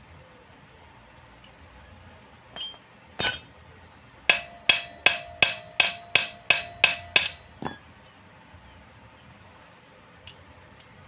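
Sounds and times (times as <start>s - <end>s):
wrench tapping on metal: 2.6s - 3.5s, 4.3s - 7.8s.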